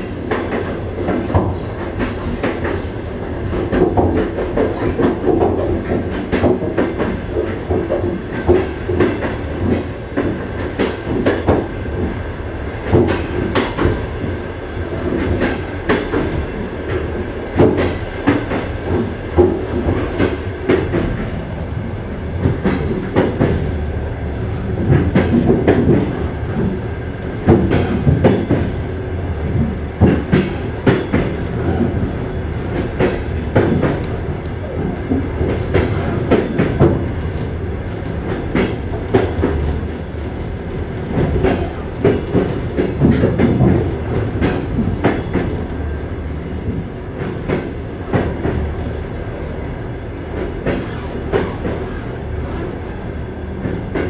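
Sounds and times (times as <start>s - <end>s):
train wheels clattering over rail joints: 0.0s - 23.8s, 24.6s - 54.0s
steady train rumble: 0.0s - 54.0s.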